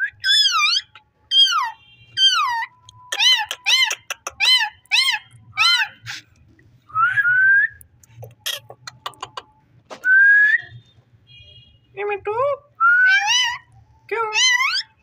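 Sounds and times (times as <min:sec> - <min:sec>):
parakeet chirps and whistles: 0:00.0 - 0:06.2, 0:12.9 - 0:13.7, 0:14.3 - 0:15.0.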